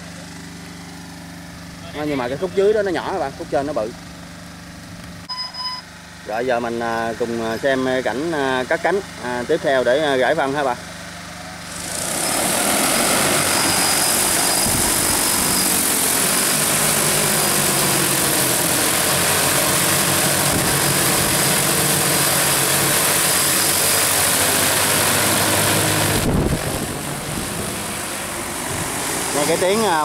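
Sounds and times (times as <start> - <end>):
drone rotors whirring: 11.5 - 30.0.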